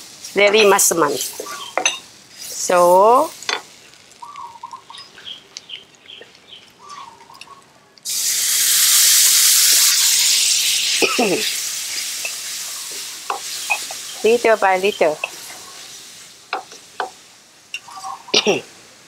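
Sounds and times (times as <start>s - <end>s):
loud sizzle: 0.0s - 7.0s, 8.0s - 19.0s
paste frying in oil: 0.0s - 19.0s
liquid poured into hot wok: 8.1s - 14.2s.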